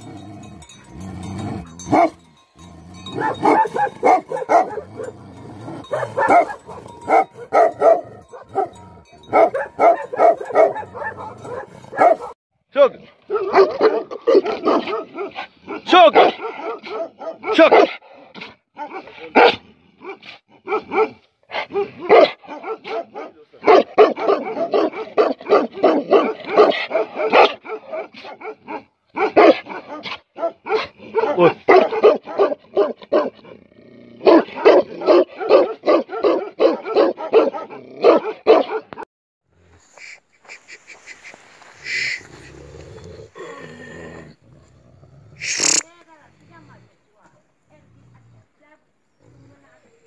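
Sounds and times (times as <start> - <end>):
large dog barking: 0.0 - 12.4, 13.0 - 39.1
loud calls: 45.4 - 45.9.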